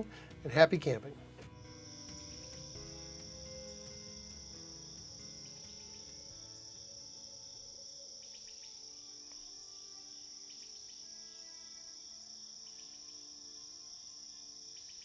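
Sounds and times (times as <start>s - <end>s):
soft background music: 0.0s - 15.0s
crickets chirring: 1.5s - 15.0s.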